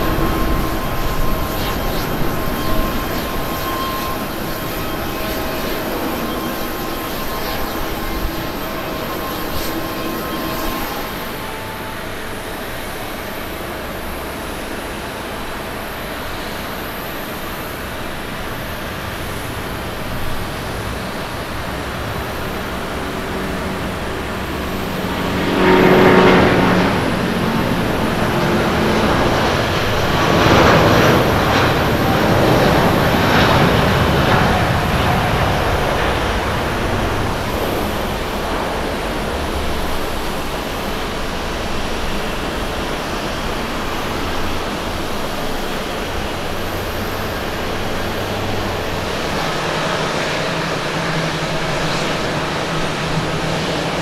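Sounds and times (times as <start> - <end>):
jet engines at takeoff power: 0.0 - 54.0.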